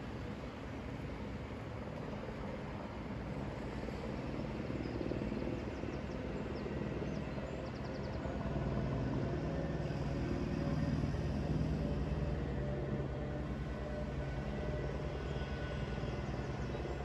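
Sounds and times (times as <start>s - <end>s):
engine drone: 0.0s - 17.0s.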